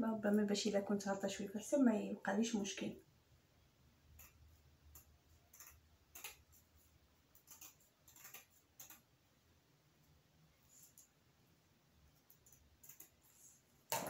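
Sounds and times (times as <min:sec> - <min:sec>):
mesh ribbon clicking and rustling: 0:07.3 - 0:09.1.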